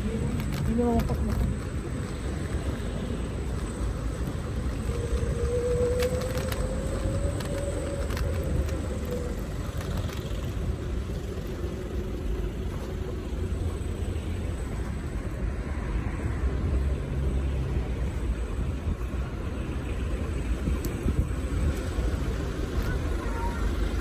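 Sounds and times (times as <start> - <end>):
wind on microphone: 0.0 - 12.8, 18.1 - 23.2
tyres rumbling on paving stones: 0.0 - 15.0.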